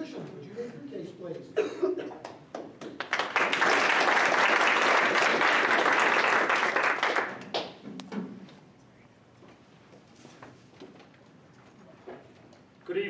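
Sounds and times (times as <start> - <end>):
audience applauding: 2.2 - 7.8.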